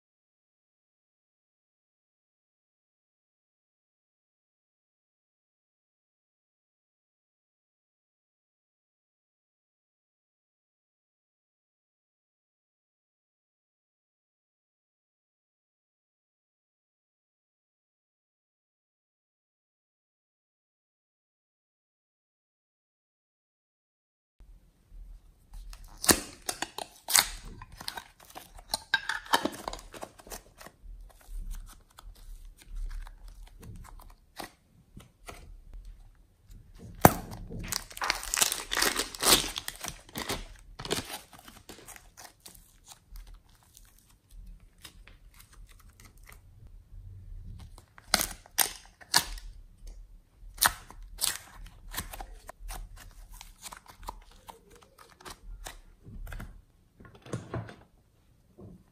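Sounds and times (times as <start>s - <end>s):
slime squishing and popping: 37.0s - 41.2s.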